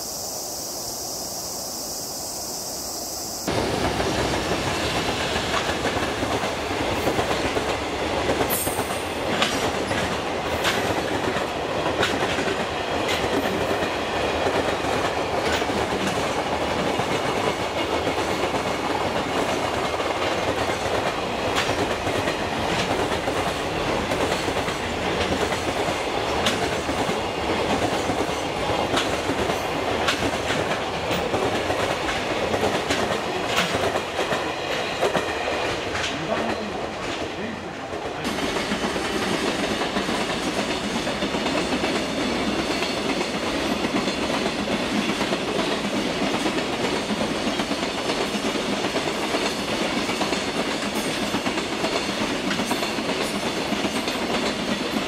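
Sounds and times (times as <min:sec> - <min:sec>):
wheels clicking over rail joints: 0:03.5 - 0:37.4.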